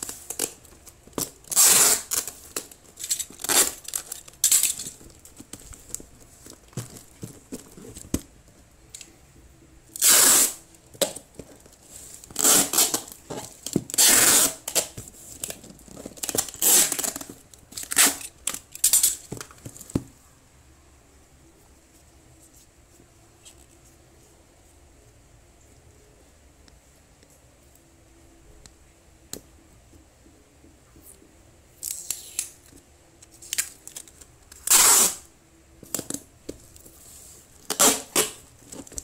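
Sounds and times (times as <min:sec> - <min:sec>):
packing tape ripping: 0:00.0 - 0:08.2, 0:10.0 - 0:11.2, 0:12.2 - 0:19.2, 0:33.4 - 0:35.3, 0:37.6 - 0:39.0
cardboard box rustling: 0:02.2 - 0:08.6.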